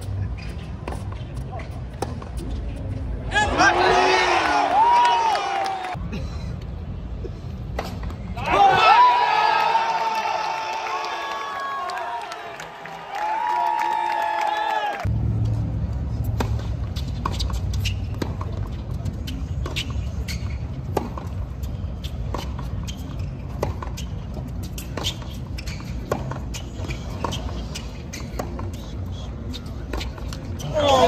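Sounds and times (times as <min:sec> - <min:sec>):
crowd cheering: 0:03.3 - 0:06.0, 0:08.4 - 0:15.1
tennis ball struck and bouncing: 0:16.3 - 0:17.5.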